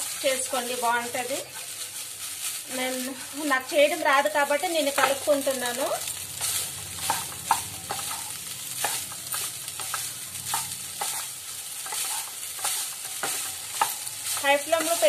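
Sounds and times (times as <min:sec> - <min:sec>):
sizzling pan: 0:00.0 - 0:15.0
spatula scraping pan: 0:06.1 - 0:15.0.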